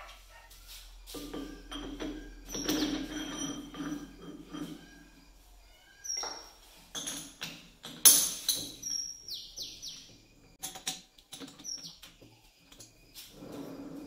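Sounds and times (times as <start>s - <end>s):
metal knocks and clinks: 1.1s - 5.4s, 6.1s - 9.1s, 10.1s - 13.1s
high falling chirps: 4.7s - 6.8s, 8.6s - 10.2s.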